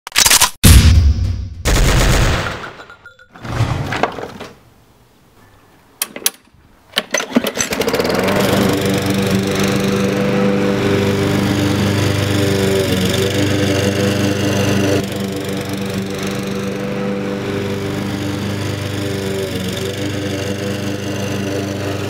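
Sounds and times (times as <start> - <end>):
gunfire sound effect: 0.6 - 2.7
engine starter rattles: 7.0 - 10.2
lawn mower engine running: 7.0 - 22.0.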